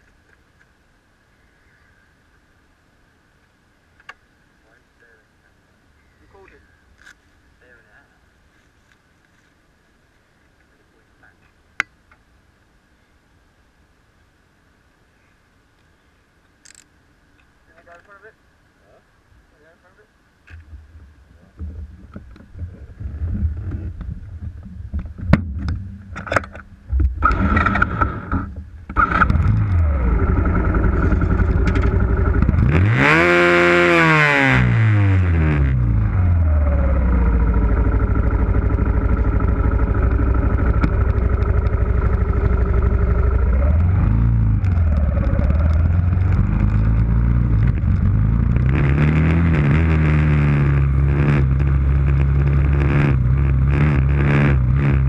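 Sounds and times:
motorcycle engine revving and idling: 0:21.8 - 0:55.0.

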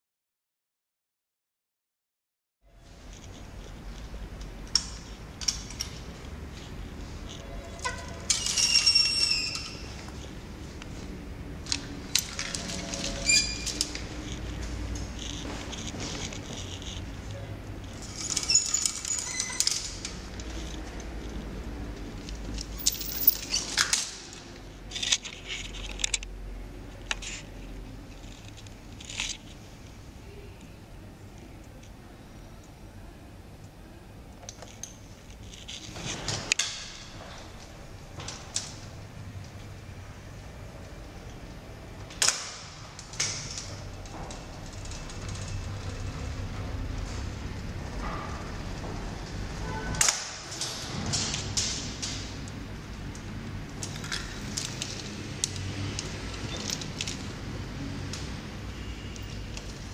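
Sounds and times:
metal gate squealing: 0:07.6 - 0:10.0, 0:12.9 - 0:13.9, 0:18.1 - 0:20.0
metal gate clicking: 0:07.7 - 0:09.9.

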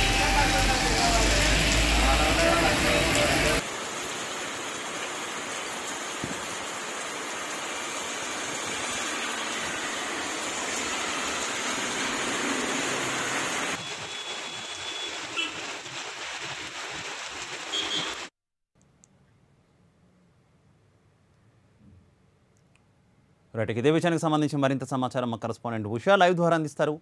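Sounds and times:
heavy rain falling: 0:00.0 - 0:18.3.

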